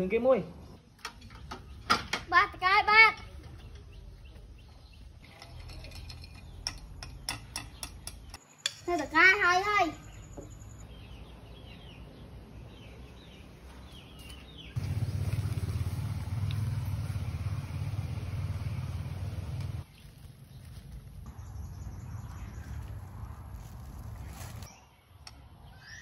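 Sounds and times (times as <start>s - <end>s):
bird chirps: 3.2s - 14.8s, 24.2s - 26.0s.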